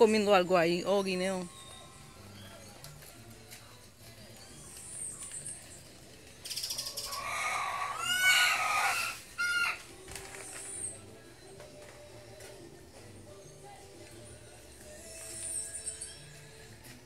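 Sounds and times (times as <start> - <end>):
small birds chirping: 0.9 - 16.8
rooster crowing: 7.0 - 9.9.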